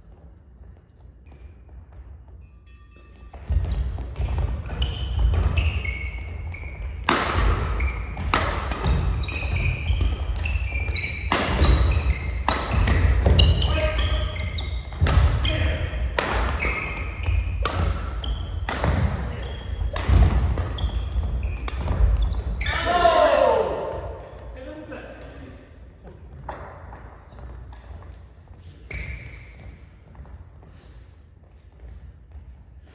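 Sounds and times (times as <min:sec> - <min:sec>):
shoes squeaking: 0:00.0 - 0:24.5, 0:27.3 - 0:31.0
racket striking shuttlecock: 0:06.8 - 0:13.7, 0:14.8 - 0:22.3.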